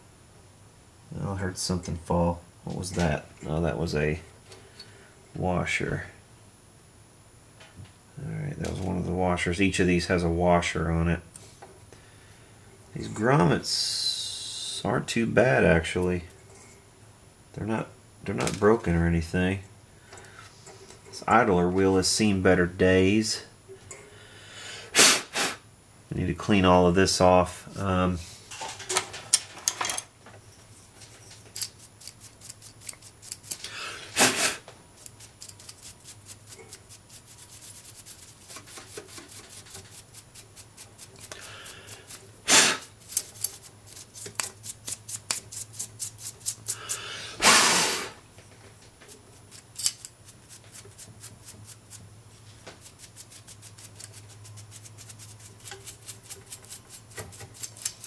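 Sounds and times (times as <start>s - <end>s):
scrubbing and scraping strokes: 30.7s - 47.1s, 49.0s - 58.0s
short rushes of noise: 47.4s - 48.2s.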